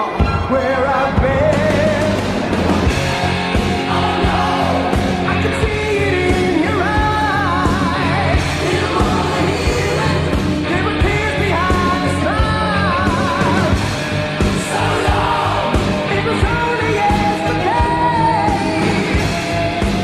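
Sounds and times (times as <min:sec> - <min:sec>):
bass line: 0:00.0 - 0:20.0
drums: 0:00.0 - 0:20.0
lead vocal singing long notes: 0:03.5 - 0:19.6.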